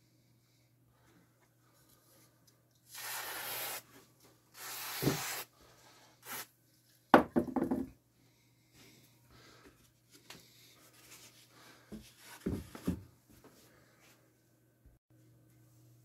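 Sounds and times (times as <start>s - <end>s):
sharp wooden knock with rattle: 7.2s - 7.9s.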